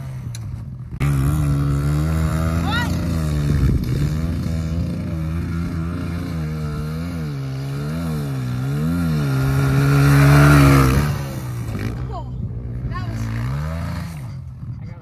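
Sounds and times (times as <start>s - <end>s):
distant dirt bike engine revving: 0.0s - 15.0s.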